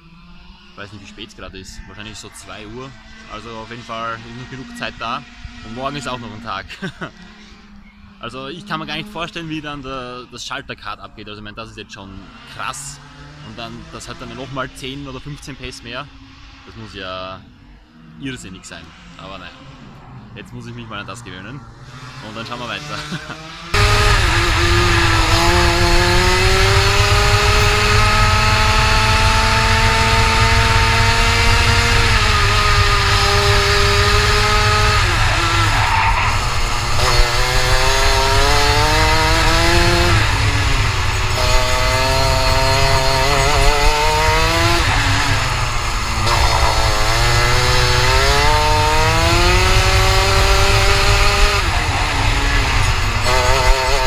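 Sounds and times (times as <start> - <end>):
kart two-stroke engine: 21.6 - 54.0.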